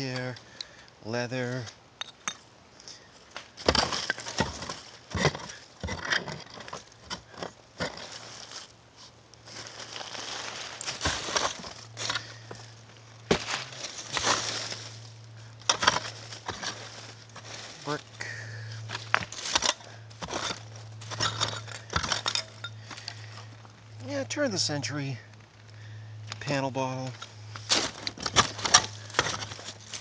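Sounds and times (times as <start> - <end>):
digging tool scraping soil: 3.6 - 12.7, 13.3 - 18.1, 18.7 - 23.3, 26.7 - 30.0.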